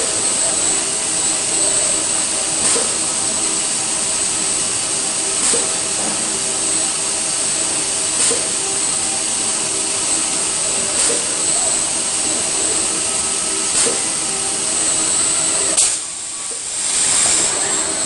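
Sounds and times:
sharp machine click: 0.0 - 3.5, 4.2 - 6.9, 7.5 - 9.0, 10.9 - 12.4, 13.6 - 17.4
loud steady hiss: 0.0 - 18.0
low machine hum: 0.0 - 18.0.

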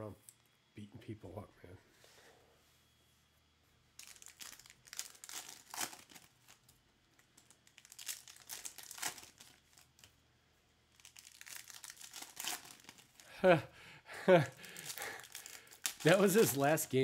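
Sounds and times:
foil wrapper crinkling and tearing: 4.0 - 10.2, 10.8 - 13.4, 14.4 - 17.0.

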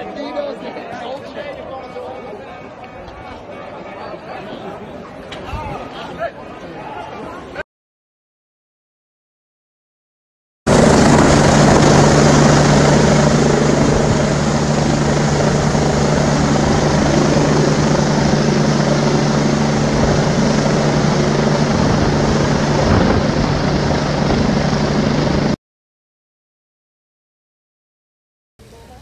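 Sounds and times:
helicopter flying overhead: 10.7 - 25.6.

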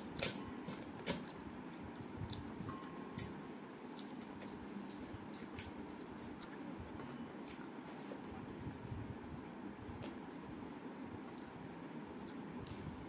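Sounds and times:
faint steady hum: 0.0 - 13.0
soft squishing of kneaded rice: 3.6 - 13.0.

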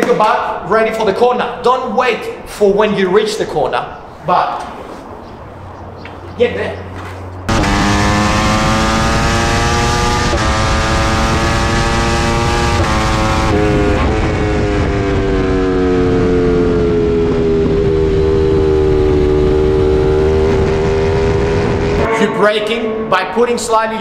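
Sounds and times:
motorcycle engine at speed: 7.5 - 22.1.

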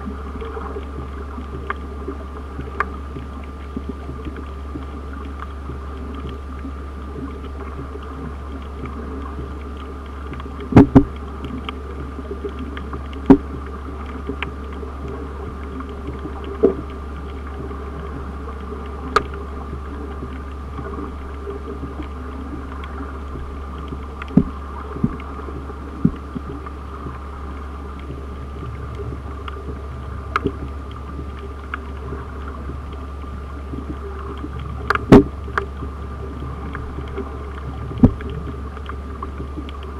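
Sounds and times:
steady low underwater hum: 0.0 - 39.9
sharp clicks or knocks: 34.9 - 35.7.

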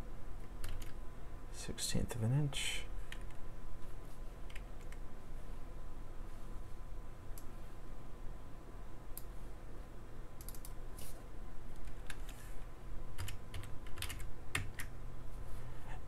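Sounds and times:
faint steady hum: 0.0 - 16.0
computer keyboard typing: 0.6 - 1.0, 3.1 - 3.4, 4.4 - 5.0, 10.4 - 10.8, 11.7 - 12.4, 13.1 - 14.9.

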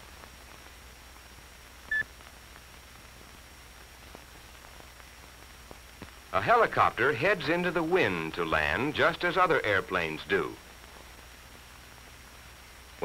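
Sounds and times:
crackle clicks: 0.0 - 6.3, 10.6 - 13.0
film soundtrack hiss and hum: 0.0 - 13.0.

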